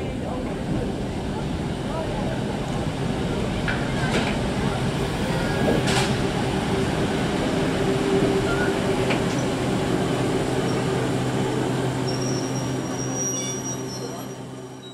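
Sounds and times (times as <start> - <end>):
steam locomotive rumble and hiss: 0.0 - 14.9
thin high squeal: 12.1 - 14.9.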